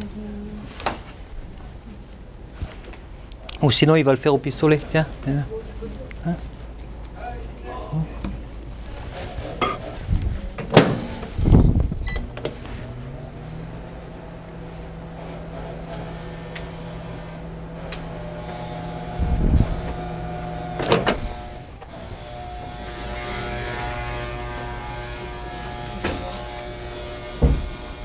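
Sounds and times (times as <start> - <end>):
small electric motor humming: 11.0 - 28.0.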